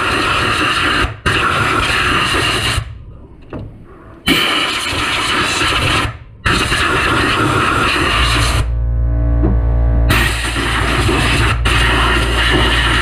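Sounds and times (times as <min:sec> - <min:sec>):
air blow gun hissing: 0:04.3 - 0:08.7, 0:10.1 - 0:13.0.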